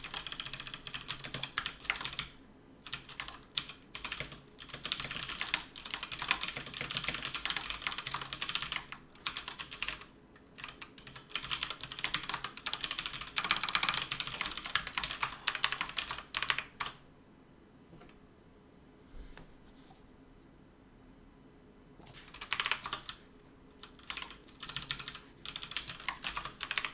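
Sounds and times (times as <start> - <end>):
fast typing on a keyboard: 0.0 - 17.0, 22.3 - 23.2, 23.8 - 26.9.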